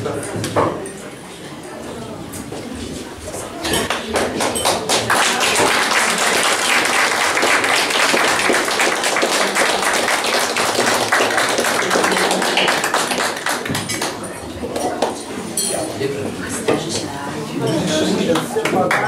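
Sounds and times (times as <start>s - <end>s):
audience applauding: 3.9s - 14.4s.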